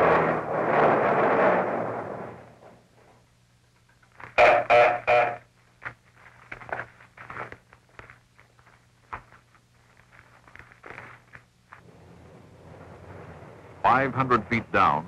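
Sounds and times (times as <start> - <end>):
faint low hum: 0.0 - 15.0
footsteps walking: 5.6 - 11.8.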